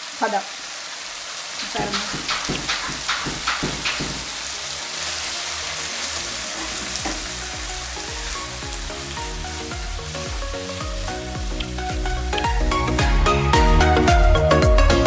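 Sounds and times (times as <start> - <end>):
curry sizzling in a wok: 0.0 - 15.0
background music with steady beat: 2.0 - 4.9, 5.9 - 15.0.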